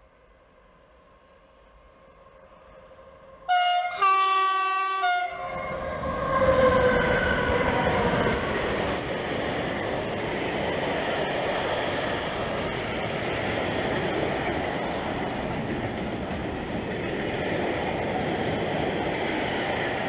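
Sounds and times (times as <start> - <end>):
freight train wheels rumbling on rails: 4.9 - 20.0.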